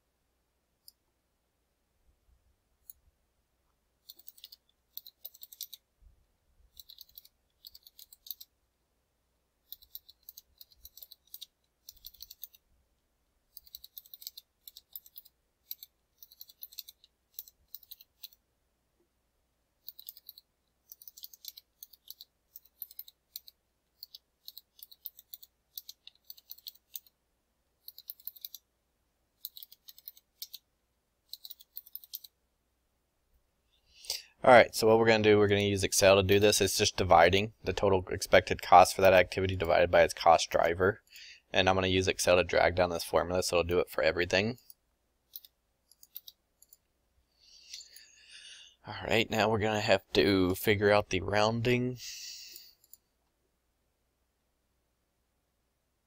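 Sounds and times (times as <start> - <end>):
computer keyboard typing: 4.0 - 5.8, 6.7 - 8.5, 9.7 - 12.6, 13.5 - 18.4, 19.8 - 27.1, 27.8 - 28.7, 29.4 - 30.6, 31.3 - 32.4, 45.3 - 46.8.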